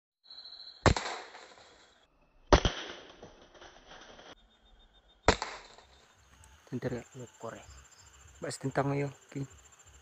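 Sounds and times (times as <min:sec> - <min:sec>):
air rifle shots: 0:00.8 - 0:01.6, 0:02.5 - 0:03.3, 0:05.3 - 0:05.9.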